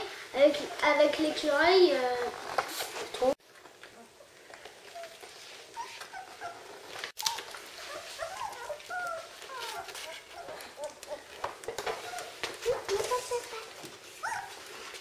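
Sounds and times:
puppies whimpering and squeaking: 4.0 - 15.0.

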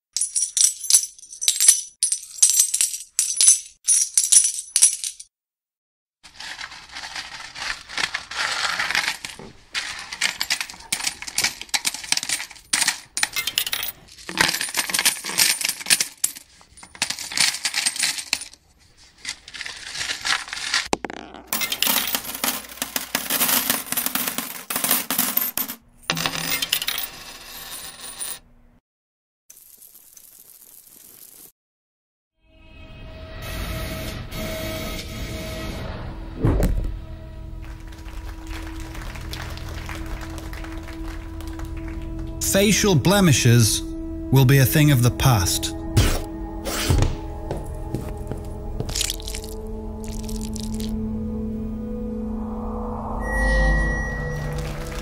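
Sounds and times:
coins clinking and jingling: 0.2 - 5.3, 6.3 - 20.9, 21.5 - 28.4, 29.5 - 31.5, 44.4 - 51.0, 53.7 - 55.0.

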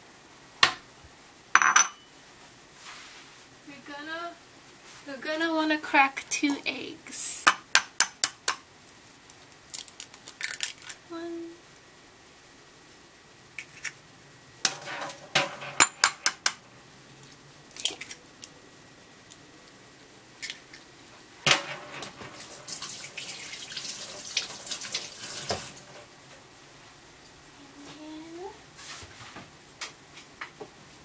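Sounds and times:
dishes and utensils clattering: 1.6 - 2.1, 14.7 - 16.6, 21.5 - 22.5.

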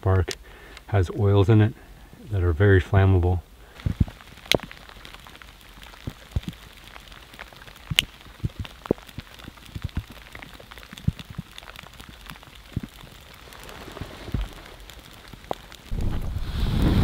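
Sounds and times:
steady rain falling: 0.0 - 17.0
raindrops tapping: 3.5 - 17.0.

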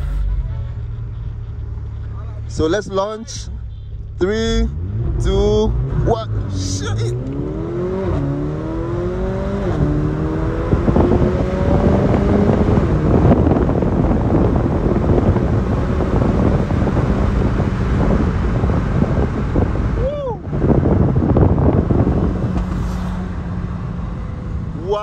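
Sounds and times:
car engine at full throttle: 0.0 - 25.0
wind and road noise: 0.0 - 25.0.

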